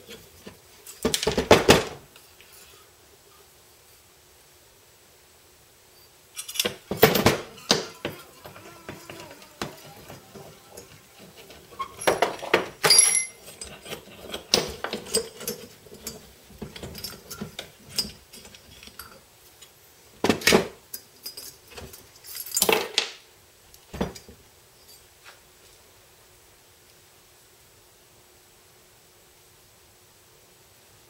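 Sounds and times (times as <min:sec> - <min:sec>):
metal tool clinks and clanks: 0:06.4 - 0:08.2, 0:09.1 - 0:19.2.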